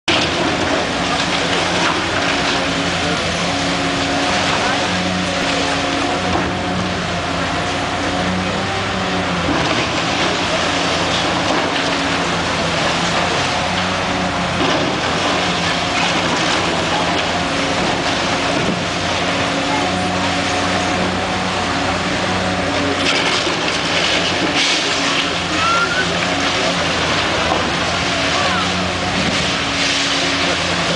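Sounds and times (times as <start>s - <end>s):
excavator engine running: 0.0s - 30.9s.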